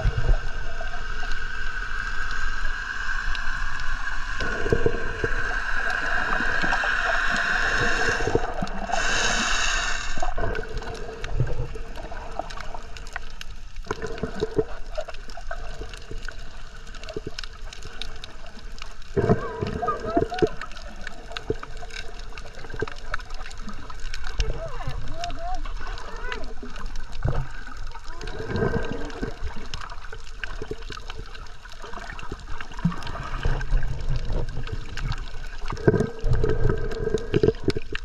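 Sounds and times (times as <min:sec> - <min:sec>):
underwater gurgling: 0:00.0 - 0:38.0.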